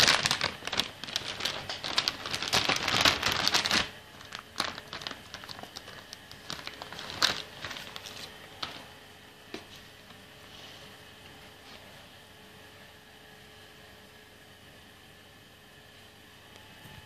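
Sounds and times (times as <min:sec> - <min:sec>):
plastic wrapping crinkling: 0:00.0 - 0:08.9.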